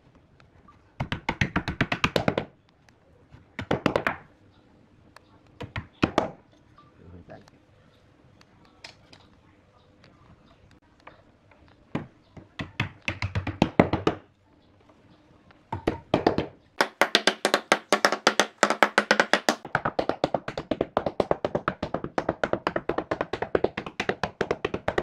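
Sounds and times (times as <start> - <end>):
wooden mallet tapping wood: 15.8 - 25.0.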